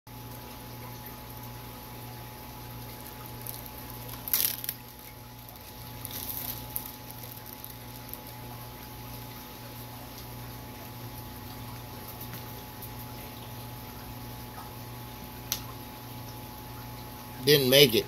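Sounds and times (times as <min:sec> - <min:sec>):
aquarium filter humming: 0:00.1 - 0:18.0
moving water: 0:00.1 - 0:18.0
crackles: 0:02.8 - 0:10.3
water splashing: 0:02.8 - 0:10.7.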